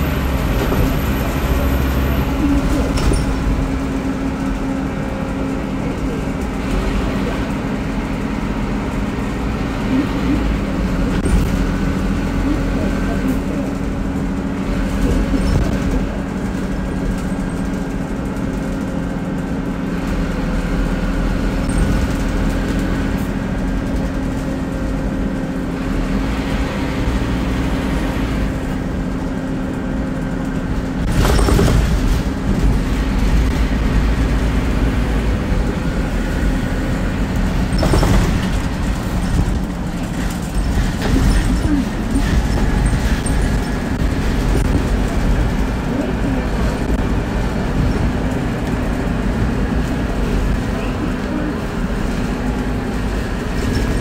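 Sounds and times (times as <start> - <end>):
bus diesel engine running: 0.0 - 54.0
loud burst of noise: 31.0 - 34.6.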